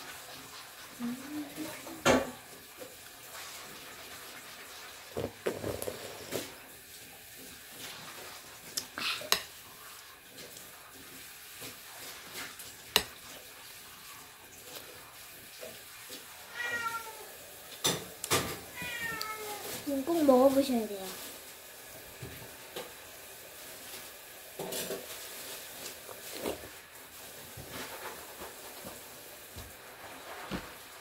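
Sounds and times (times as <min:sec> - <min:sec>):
eating and slurping: 0:04.9 - 0:06.6, 0:07.7 - 0:15.3.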